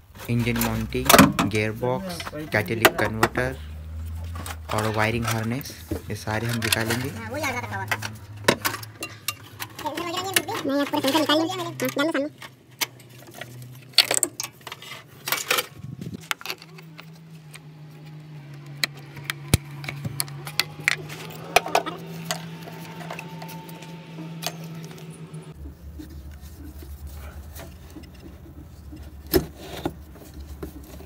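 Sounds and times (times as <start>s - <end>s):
tools clicking and knocking: 4.3s - 17.7s
steady low hum: 15.6s - 31.0s.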